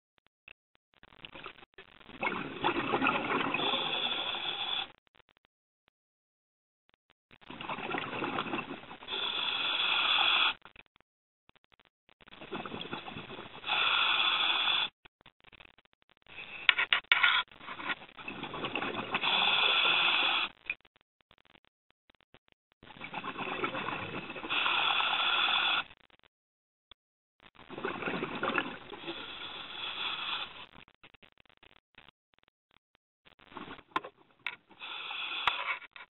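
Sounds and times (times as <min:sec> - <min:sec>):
bubbling: 0:01.1 - 0:04.9, 0:07.4 - 0:10.6, 0:12.2 - 0:16.4, 0:17.8 - 0:20.8, 0:22.8 - 0:25.9, 0:27.5 - 0:30.9
diver breathing through regulator: 0:03.4 - 0:04.9, 0:09.1 - 0:10.6, 0:13.5 - 0:14.9, 0:18.8 - 0:20.5, 0:23.2 - 0:25.9, 0:28.0 - 0:30.6, 0:34.8 - 0:35.9.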